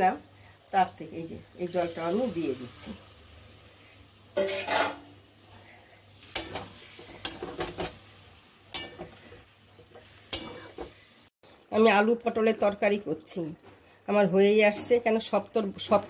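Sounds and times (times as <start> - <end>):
spatula clinking on metal pan: 8.7 - 9.1, 10.3 - 10.8.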